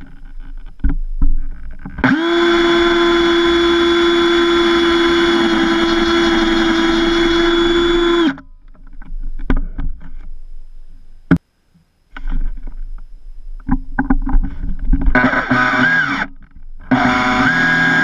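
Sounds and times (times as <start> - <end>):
cordless drill drilling wood: 2.0 - 8.4, 15.1 - 16.3, 16.9 - 18.0.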